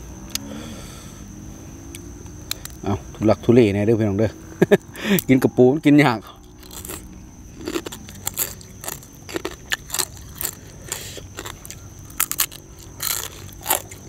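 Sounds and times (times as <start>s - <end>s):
crab shells crunching: 6.5s - 14.0s.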